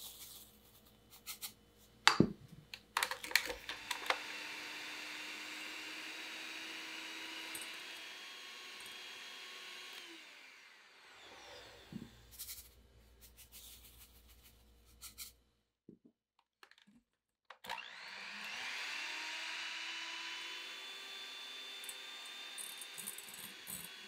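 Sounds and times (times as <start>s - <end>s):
electric hand mixer whining: 3.4s - 12.3s, 17.7s - 24.0s.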